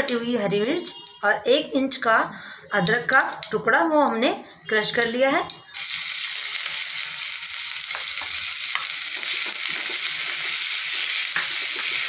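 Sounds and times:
food sizzling in hot oil: 0:03.2 - 0:12.0.

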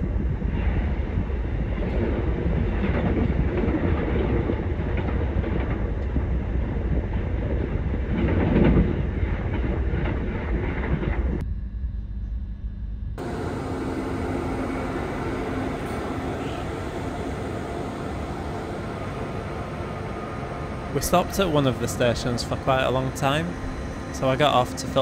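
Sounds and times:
train rumble from inside carriage: 0:00.0 - 0:11.5, 0:13.2 - 0:25.0.

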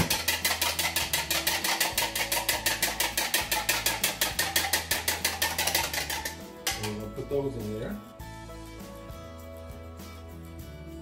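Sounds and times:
fork beating eggs in glass cup: 0:00.0 - 0:07.3.

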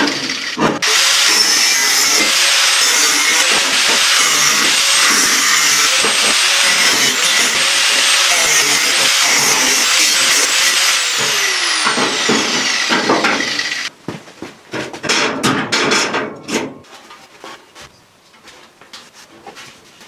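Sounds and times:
angle grinder on steel: 0:00.0 - 0:13.9.

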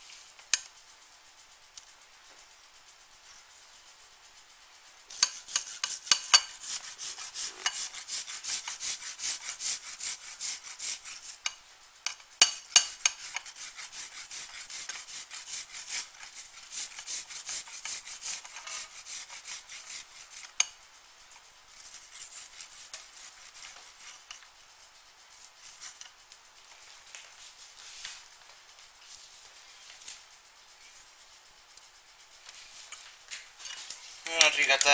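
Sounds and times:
garlic grating on a zester: 0:05.1 - 0:24.6, 0:25.3 - 0:28.4, 0:32.4 - 0:34.9.

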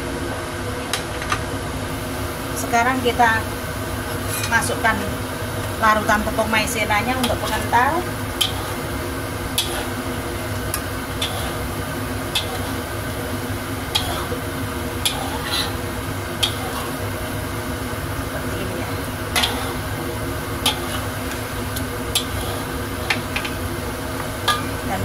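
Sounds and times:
steady hum: 0:00.0 - 0:25.0
light sizzle: 0:01.8 - 0:25.0
metal spatula clicking on wok: 0:12.4 - 0:12.6, 0:16.4 - 0:16.6.

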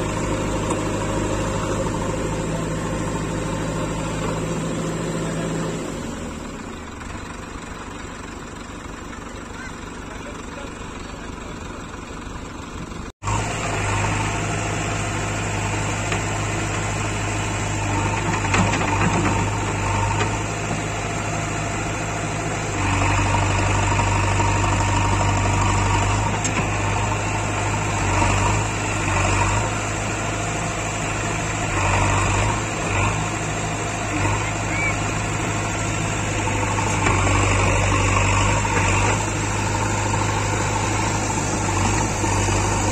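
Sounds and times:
diesel engine running: 0:00.0 - 0:42.9
tractor engine: 0:00.0 - 0:42.9.

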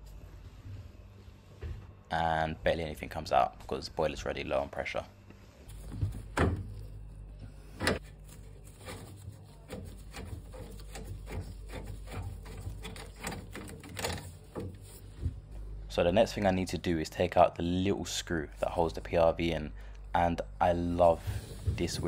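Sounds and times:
steady low hum: 0:00.0 - 0:22.0
clicks and rattles on pipework: 0:08.8 - 0:15.0.

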